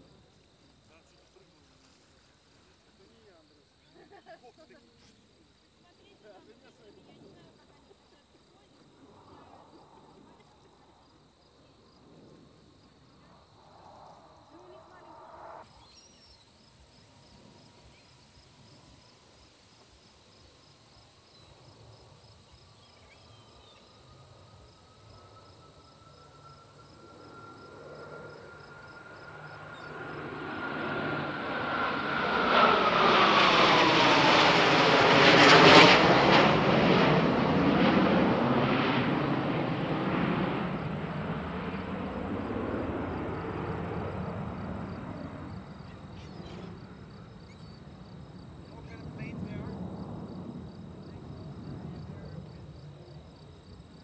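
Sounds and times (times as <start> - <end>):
jet fighters roaring overhead: 23.9 - 54.0.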